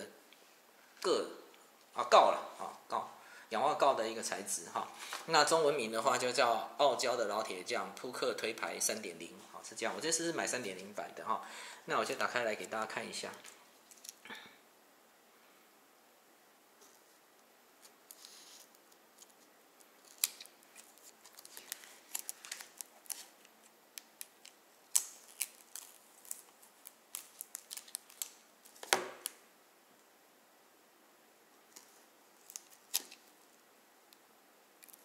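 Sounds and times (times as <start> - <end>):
plastic film crackling: 18.0 - 29.4, 31.7 - 33.5.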